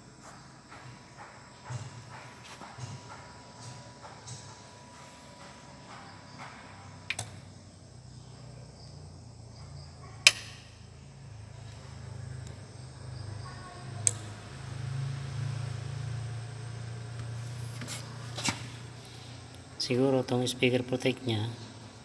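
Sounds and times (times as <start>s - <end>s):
amplifier switch clicks: 10.2s - 10.6s.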